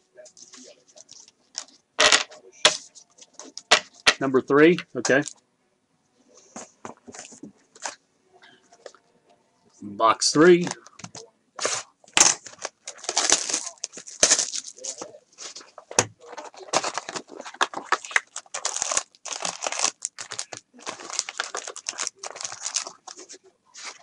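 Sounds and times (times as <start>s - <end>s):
foil card packs crinkling: 10.6s - 24.0s.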